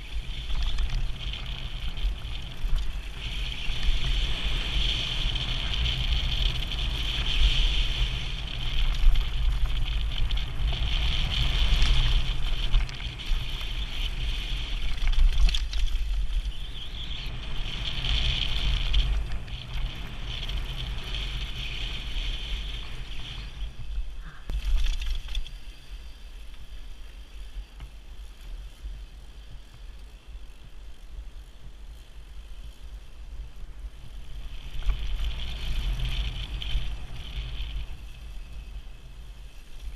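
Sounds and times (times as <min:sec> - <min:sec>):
wind buffeting microphone: 0:00.0 - 0:25.4
bike tyres on gravel: 0:00.0 - 0:39.9.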